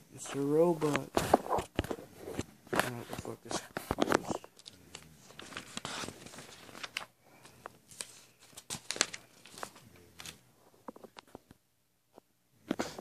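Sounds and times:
paper rustling and crinkling: 0.2 - 11.5.

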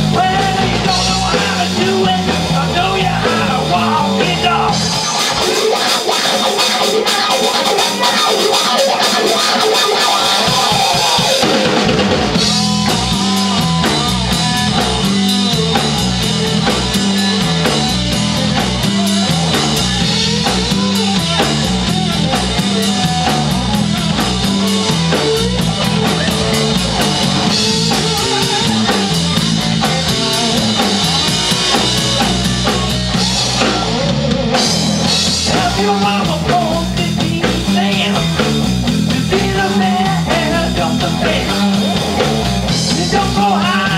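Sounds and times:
live rock band playing: 0.0 - 43.9.

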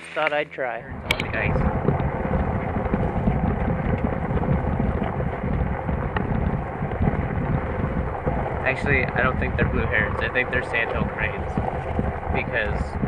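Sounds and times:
engine and road rumble: 0.0 - 13.0
faint steady hum: 0.0 - 13.0.

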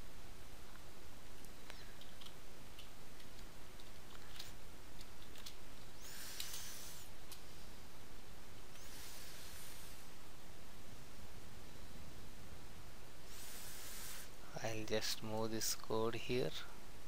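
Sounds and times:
background noise: 0.0 - 17.0
rustle: 0.0 - 17.0.

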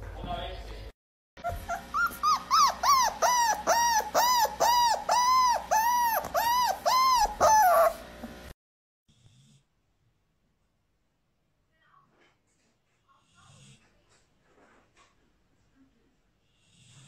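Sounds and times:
dog howling calls: 1.6 - 8.0.

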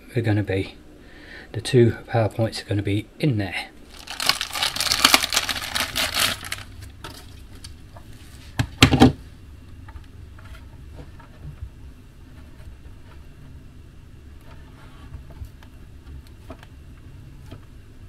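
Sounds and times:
plastic packaging crinkling: 3.8 - 7.7.

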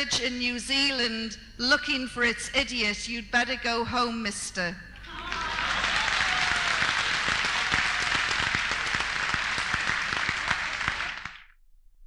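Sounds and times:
large audience applauding: 5.0 - 11.5.

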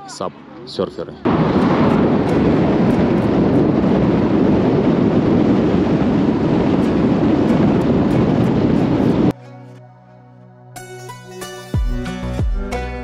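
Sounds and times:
wind buffeting microphone: 1.3 - 9.4.

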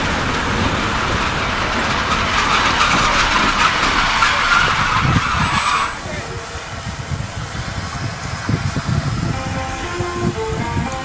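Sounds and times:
high squeal: 0.0 - 7.2
train wheels rushing past: 0.0 - 11.0.

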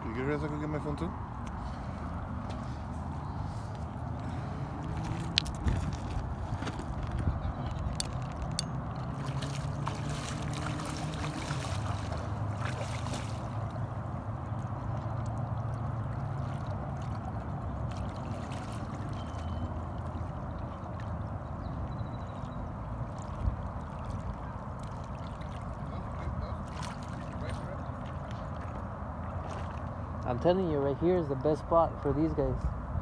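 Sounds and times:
water lapping at gravel bank: 0.0 - 30.9
splashes or knocks: 9.0 - 13.6.

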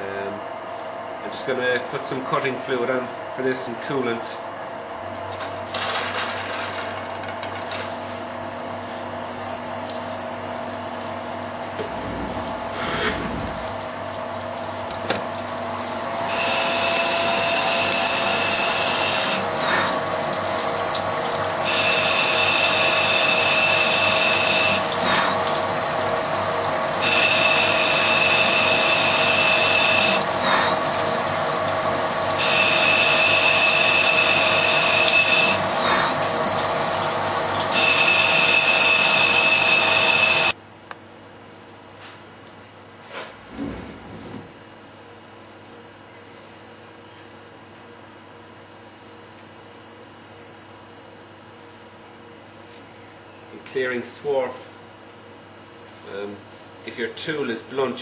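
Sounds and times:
lathe running with coolant hiss: 11.7 - 13.8, 15.9 - 40.6
high whine of threading tool: 15.8 - 40.6.

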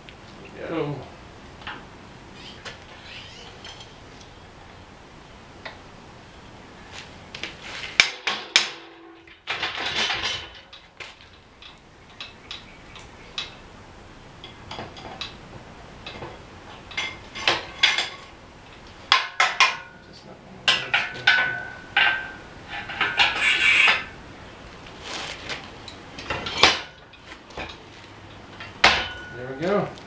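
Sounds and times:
short metal rattle: 7.9 - 12.7
metal clanks and clicks: 8.0 - 13.6, 20.7 - 23.4, 25.8 - 29.8.

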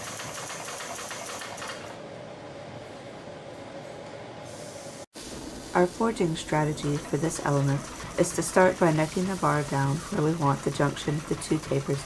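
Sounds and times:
machine running steadily: 5.3 - 12.0.

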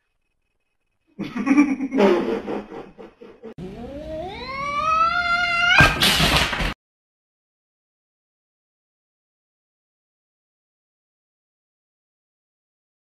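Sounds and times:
cat yowling: 3.8 - 6.0.

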